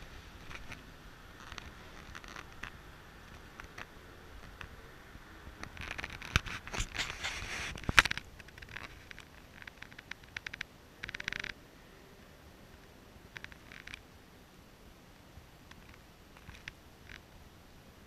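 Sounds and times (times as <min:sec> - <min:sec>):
close scraping and rustling: 0:00.0 - 0:04.9, 0:05.5 - 0:11.6.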